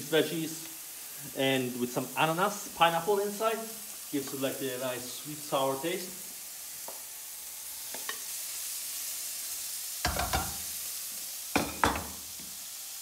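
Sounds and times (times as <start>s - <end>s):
food sizzling in frying pan: 0.0s - 13.0s
bowl and spoon knocking pan: 10.0s - 10.6s, 11.6s - 12.2s.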